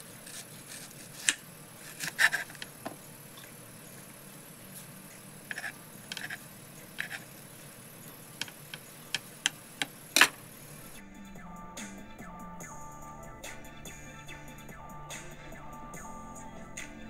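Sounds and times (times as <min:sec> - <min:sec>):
music: 0:10.9 - 0:17.0.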